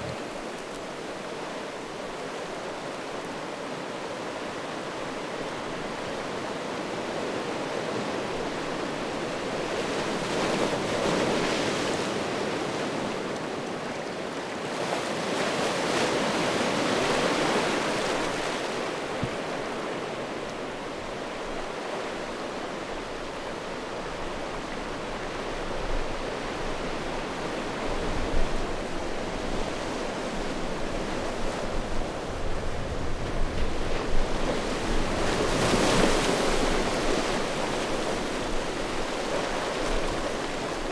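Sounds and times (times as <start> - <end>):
wind buffeting microphone: 27.8 - 39.2
waves washing over stones: 30.6 - 40.9.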